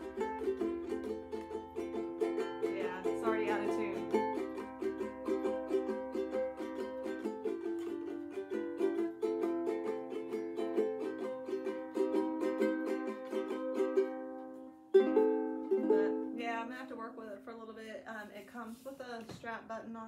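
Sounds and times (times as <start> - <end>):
ukulele strumming chords: 0.0 - 17.4.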